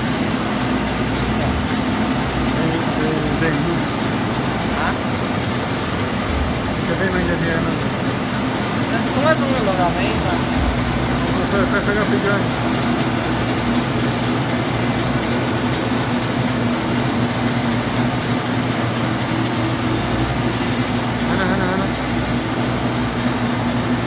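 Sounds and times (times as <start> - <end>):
high machine whine: 0.0 - 24.0
printing machine rumble and hum: 0.0 - 24.0.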